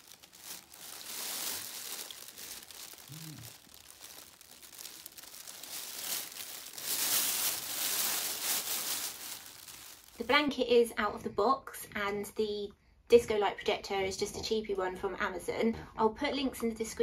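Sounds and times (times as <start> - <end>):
foil blanket crinkling: 0.0 - 10.4
baby cooing: 3.1 - 3.5.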